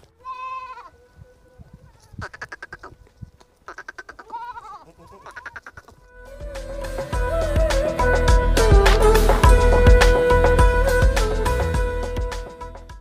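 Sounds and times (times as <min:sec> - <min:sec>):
goats bleating: 0:00.2 - 0:01.0, 0:03.7 - 0:06.0
music: 0:06.0 - 0:13.0.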